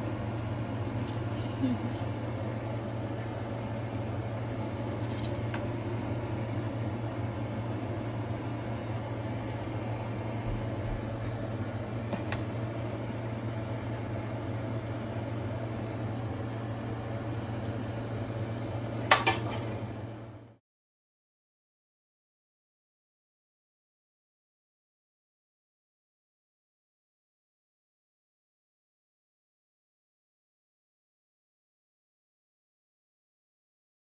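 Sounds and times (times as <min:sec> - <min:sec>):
steady low hum: 0:00.0 - 0:20.6.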